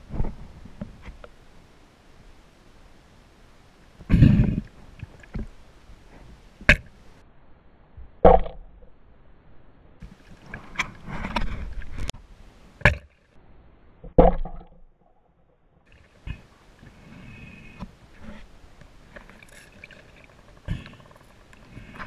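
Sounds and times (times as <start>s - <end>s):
underwater rustling: 10.0s - 12.2s, 15.8s - 22.0s.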